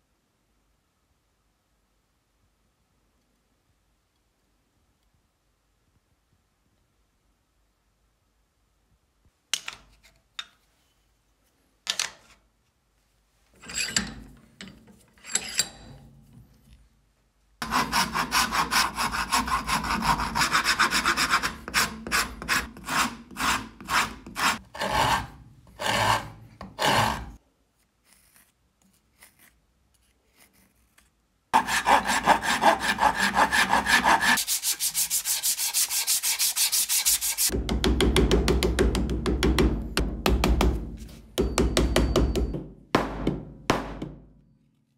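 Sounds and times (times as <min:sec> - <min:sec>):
rasp filing wood: 0:17.6 - 0:27.4, 0:31.6 - 0:37.5
knocks on metal vise: 0:37.5 - 0:44.2.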